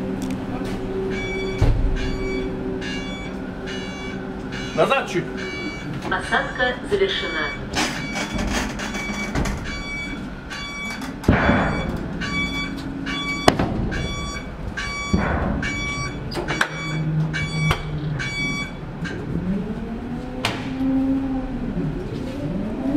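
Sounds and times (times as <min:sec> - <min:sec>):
boat whine gliding in pitch: 0:00.0 - 0:08.2, 0:15.8 - 0:22.9
clunks: 0:00.2 - 0:19.3
rapid warning beeps: 0:01.1 - 0:19.2.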